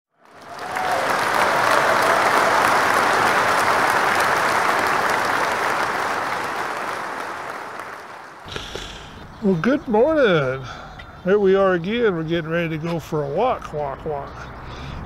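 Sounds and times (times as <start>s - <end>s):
audience applause: 0.1s - 9.0s.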